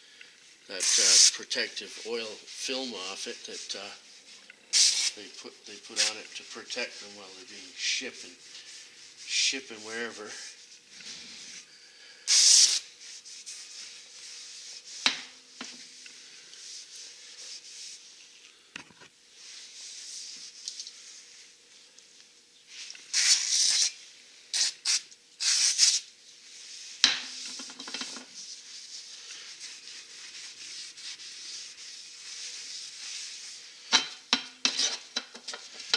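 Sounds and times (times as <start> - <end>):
quiet rubbing and wiping: 0.4 - 24.5, 25.4 - 33.9, 34.6 - 35.9
aerosol spray hissing: 4.7 - 5.2, 12.3 - 13.6, 23.1 - 26.1.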